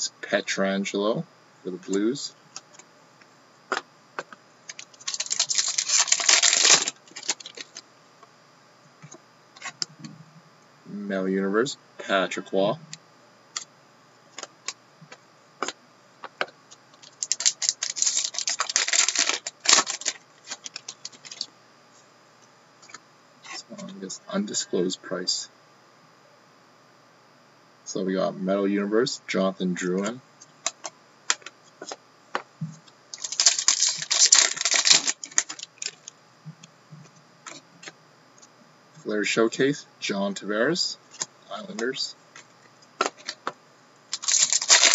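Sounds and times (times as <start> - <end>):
foil wrapper crinkling: 4.7 - 7.8, 17.0 - 21.5, 33.1 - 36.1, 44.1 - 44.9.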